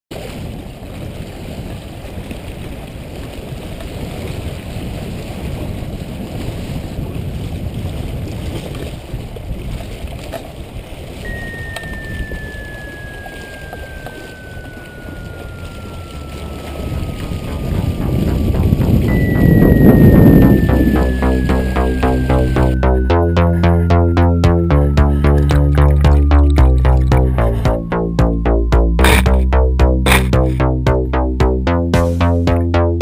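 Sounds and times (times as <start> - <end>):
waves lapping against rocks: 0.1 - 22.0
wind buffeting microphone: 0.1 - 29.5
thin falling whistle-like tone: 11.2 - 29.4.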